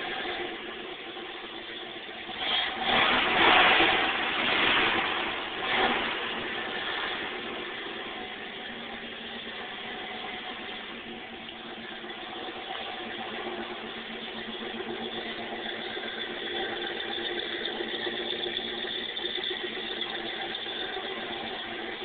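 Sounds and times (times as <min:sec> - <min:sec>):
car engine idling: 0:00.0 - 0:22.0.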